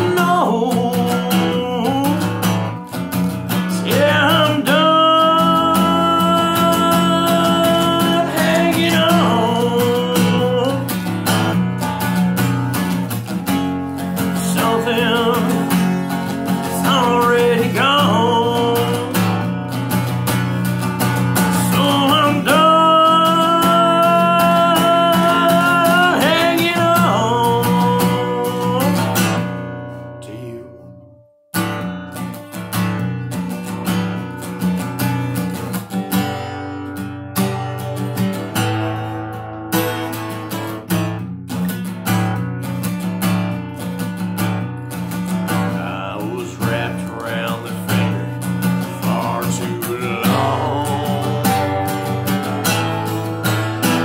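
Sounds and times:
man singing: 0.0 - 11.6, 13.4 - 19.8, 21.1 - 31.0, 45.3 - 54.0
acoustic guitar strumming: 0.0 - 54.0.

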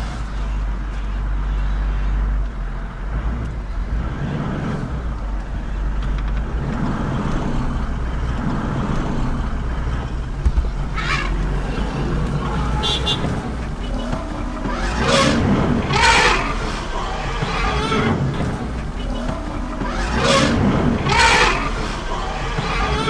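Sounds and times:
vehicle engine idling: 0.0 - 23.0.

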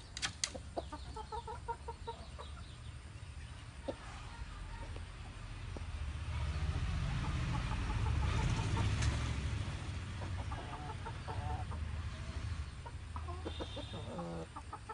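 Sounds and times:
fowl clucking: 0.5 - 2.7, 10.2 - 11.9, 12.8 - 14.9.

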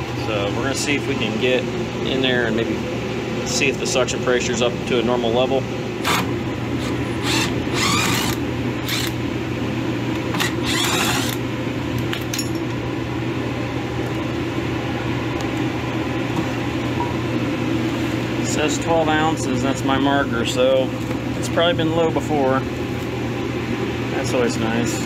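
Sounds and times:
low machine hum: 0.0 - 25.0
cordless drill whirring: 6.0 - 9.2, 10.3 - 11.4.

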